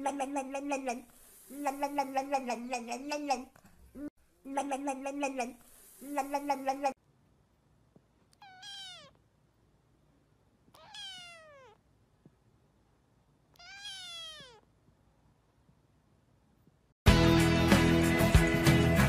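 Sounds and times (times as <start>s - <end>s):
kitten meowing: 8.4s - 9.2s, 10.8s - 11.8s, 13.6s - 14.6s.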